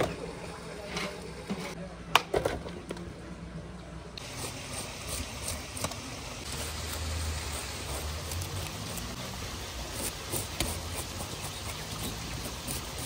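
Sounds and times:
knife scraping fish scales: 4.2 - 9.2, 9.8 - 13.0.

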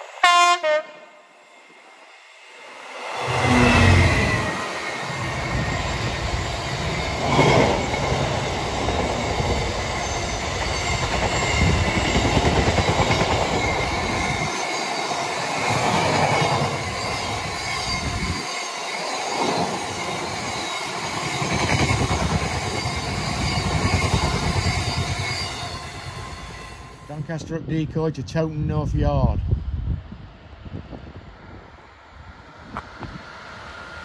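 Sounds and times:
high wheel squeal: 1.3 - 27.2
freight train wheels rumbling: 2.6 - 34.0.

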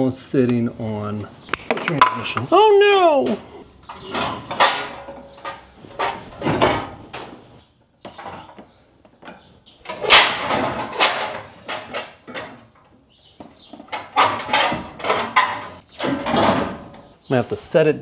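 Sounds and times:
metal chain clanking and rattling: 3.4 - 7.4, 9.2 - 17.2.

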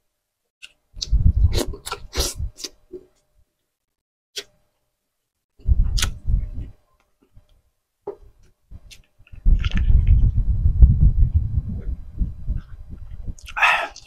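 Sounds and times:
loud gulps swallowing a drink: 13.3 - 14.0
mouth smacking and chewing: 13.3 - 14.0.

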